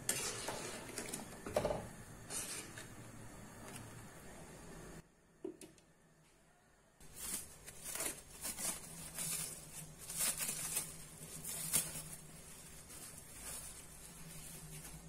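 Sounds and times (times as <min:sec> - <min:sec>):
plastic cling wrap crinkling: 0:07.0 - 0:15.0.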